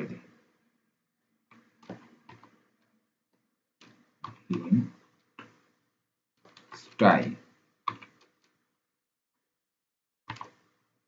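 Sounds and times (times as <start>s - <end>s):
taps on computer keyboard keys: 1.5s - 2.6s, 3.8s - 5.7s, 6.4s - 7.0s, 7.8s - 8.6s, 10.2s - 10.7s.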